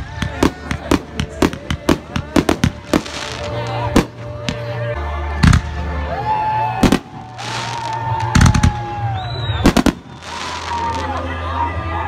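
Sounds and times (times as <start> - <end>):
fireworks bursting with sharp bangs: 0.0 - 4.7, 5.4 - 5.9, 6.8 - 11.2
fireworks hissing: 1.1 - 3.7, 9.6 - 11.2.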